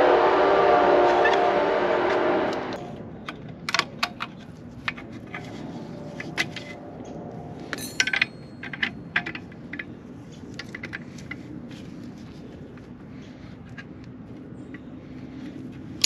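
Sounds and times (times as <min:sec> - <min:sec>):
metal tools clinking: 0:04.3 - 0:09.9.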